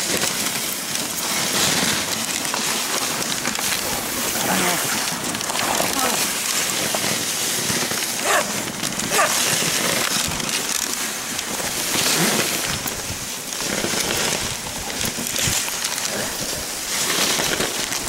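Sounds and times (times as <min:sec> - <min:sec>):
sled runners hissing over snow: 0:00.0 - 0:18.0
dogs barking: 0:08.2 - 0:09.5.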